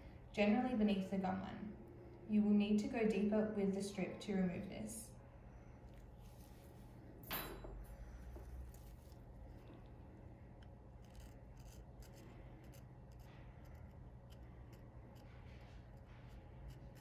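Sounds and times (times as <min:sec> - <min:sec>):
low steady hum: 0:00.0 - 0:17.0
strip scratching between teeth: 0:10.6 - 0:17.0.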